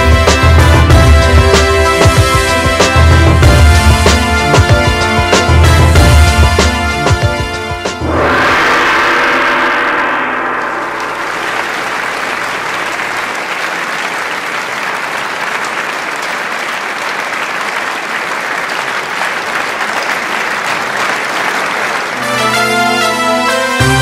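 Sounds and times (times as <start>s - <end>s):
music chord ringing: 8.0s - 13.0s
large audience applauding: 10.9s - 24.0s.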